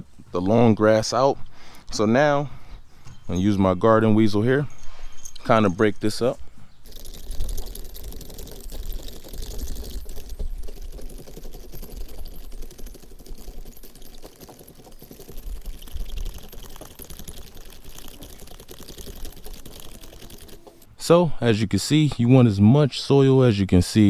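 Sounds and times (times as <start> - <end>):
metal tines scraping dry grass: 6.8 - 20.9.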